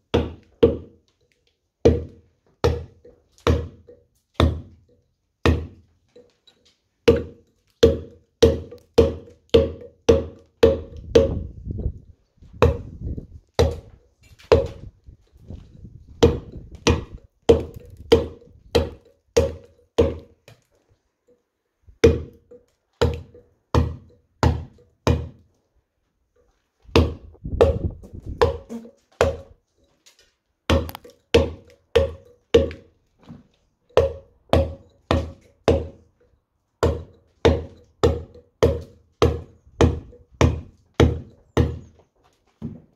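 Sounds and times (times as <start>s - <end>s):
mallet striking steel chisel: 1.8s - 11.5s, 12.6s - 13.0s, 13.6s - 14.9s, 16.1s - 20.7s, 22.0s - 25.5s, 26.9s - 29.6s, 30.7s - 41.9s.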